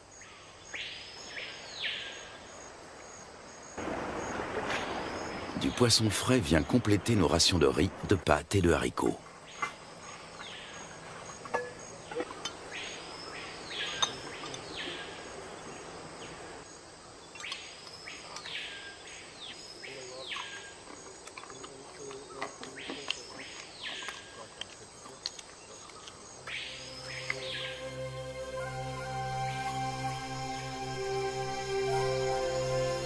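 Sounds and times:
high insect drone: 0:24.8 - 0:33.0.

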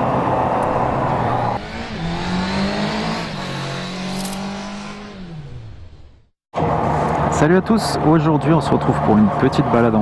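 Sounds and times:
motorcycle engine revving: 0:00.7 - 0:06.3.

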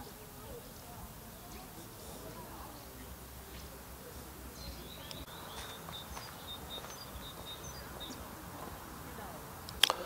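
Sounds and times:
faint outdoor background noise: 0:00.0 - 0:10.0
small bird chirping: 0:04.6 - 0:08.3.

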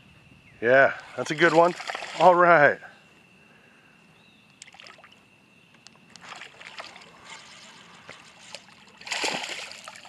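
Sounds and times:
faint high whine: 0:00.0 - 0:10.0
water sloshing and splashing: 0:01.0 - 0:02.4, 0:04.6 - 0:05.2, 0:06.1 - 0:10.0.

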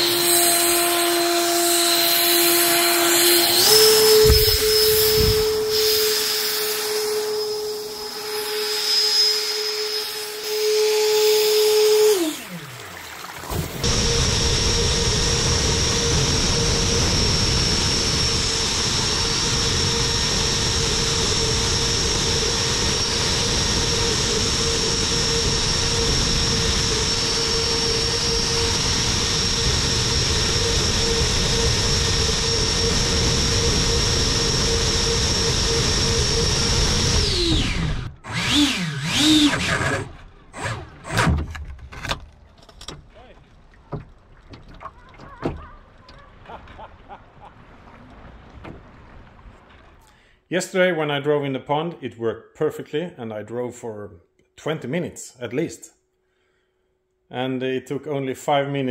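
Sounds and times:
electric ducted fan whine: 0:00.0 - 0:13.2, 0:13.8 - 0:41.1
fan throttle bursts: 0:00.0 - 0:41.4.

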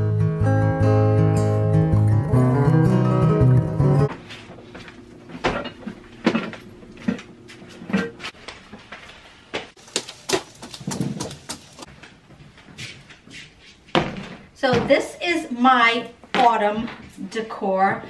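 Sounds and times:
strummed acoustic guitar: 0:00.0 - 0:04.1
footsteps on wooden stairs: 0:09.6 - 0:15.0
plastic tote knocks and thumps: 0:09.8 - 0:11.8.

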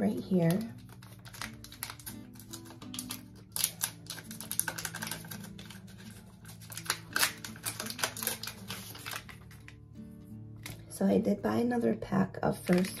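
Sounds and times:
foil wrapper tearing and crinkling: 0:00.3 - 0:09.8, 0:10.6 - 0:10.8, 0:12.6 - 0:13.0.

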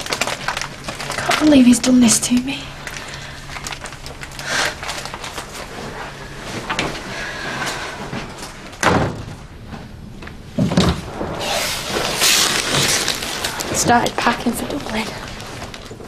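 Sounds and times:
heavy door thud: 0:08.8 - 0:09.5.

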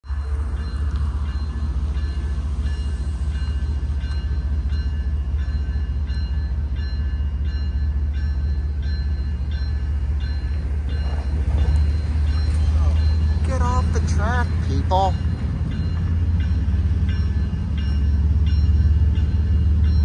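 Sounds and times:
crossing warning bell ringing: 0:00.0 - 0:20.0.

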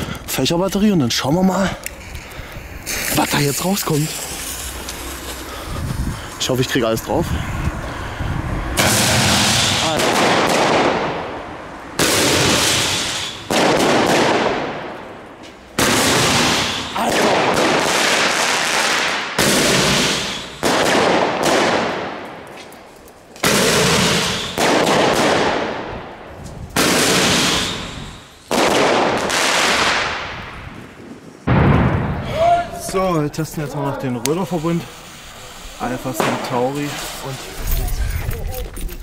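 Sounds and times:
hiss of burning fireworks: 0:02.0 - 0:06.8, 0:08.8 - 0:11.2, 0:12.0 - 0:14.9, 0:15.6 - 0:22.8, 0:23.4 - 0:25.8, 0:26.7 - 0:30.6, 0:33.2 - 0:37.8
firework bangs: 0:02.8 - 0:05.5, 0:08.6 - 0:22.5, 0:23.4 - 0:33.5, 0:34.3 - 0:37.6.

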